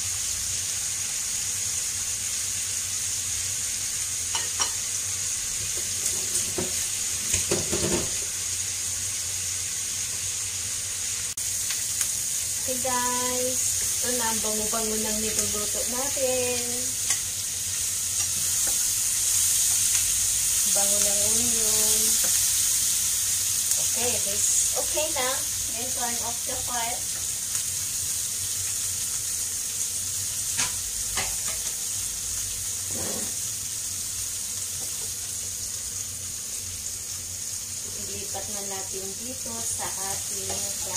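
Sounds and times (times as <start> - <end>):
onions sizzling in oil: 0.0 - 40.9.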